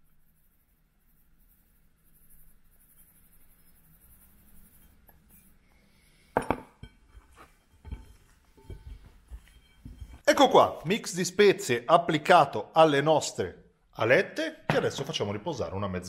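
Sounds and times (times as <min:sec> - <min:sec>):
spice rub pouring: 0:00.0 - 0:06.3.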